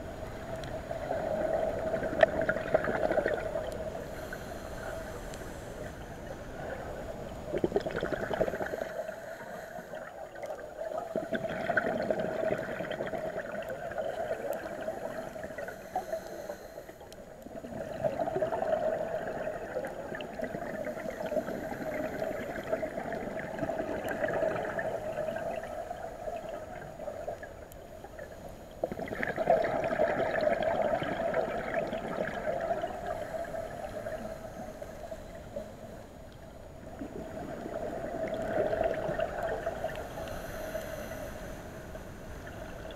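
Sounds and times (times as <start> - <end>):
exhaled bubbles gurgling: 0.0 - 42.9
scuba regulator breathing: 3.6 - 6.4, 7.9 - 10.3, 14.4 - 17.4, 20.7 - 22.9, 32.9 - 36.0, 39.7 - 42.9.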